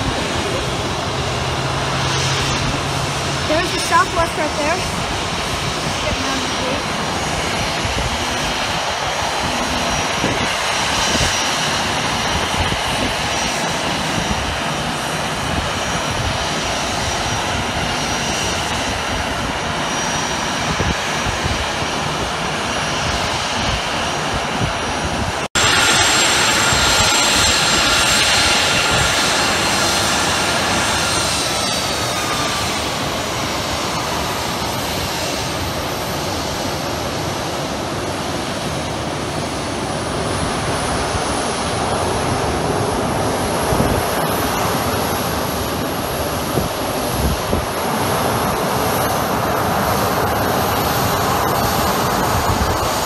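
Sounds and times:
jet engines whining: 0.0s - 53.0s.

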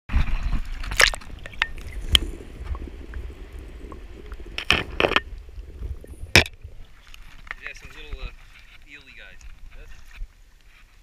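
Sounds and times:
water splashes and knocks: 0.1s - 3.2s, 3.8s - 10.8s
muffled underwater rumble: 0.1s - 8.8s.

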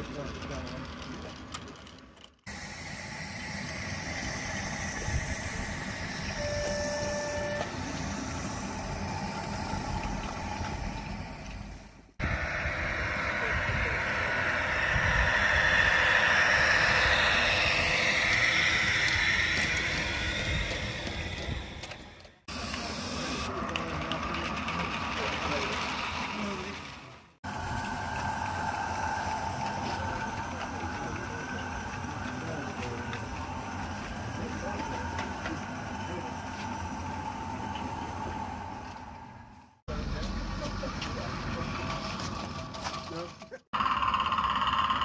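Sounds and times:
steam hissing: 2.5s - 39.8s
short steady tone: 5.1s - 7.8s.

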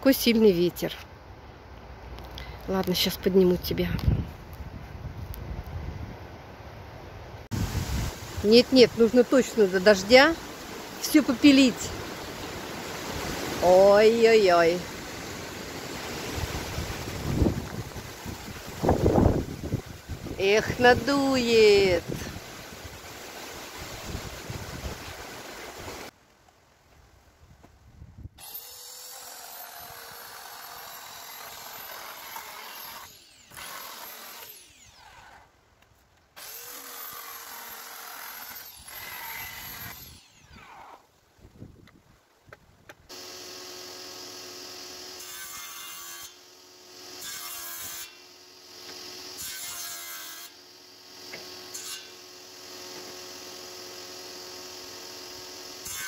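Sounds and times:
handheld power saw cutting wood: 20.4s - 22.3s, 28.4s - 35.6s, 36.4s - 41.1s, 43.1s - 56.0s.

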